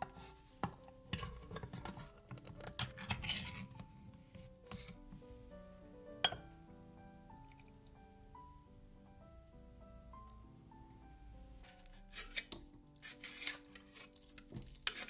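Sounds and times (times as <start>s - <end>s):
dishes and utensils clinking: 0.0s - 3.8s, 6.2s - 6.5s, 11.8s - 15.0s
background music: 0.0s - 15.0s.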